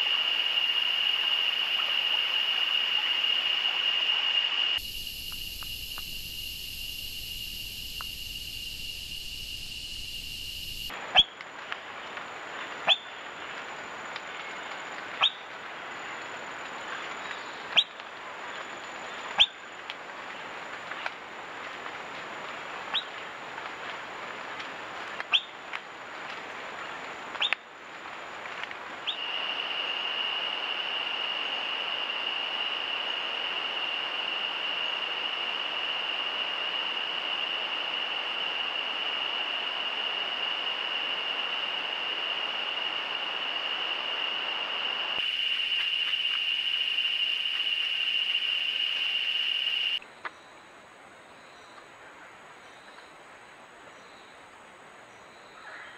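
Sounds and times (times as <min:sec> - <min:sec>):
high-pitched insect drone: 0:00.0 - 0:10.9, 0:29.2 - 0:50.0
steady hiss: 0:00.0 - 0:50.0.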